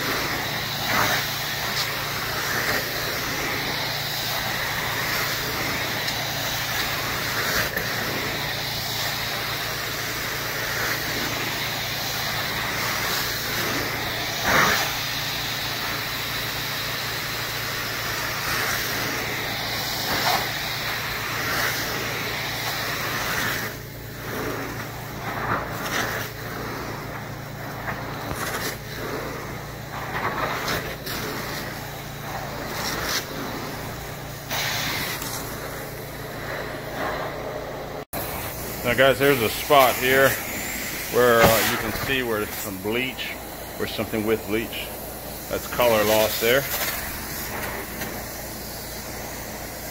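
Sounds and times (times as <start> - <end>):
carpet cleaner vacuum sucking: 0.0 - 49.9
constant hum: 21.8 - 49.8.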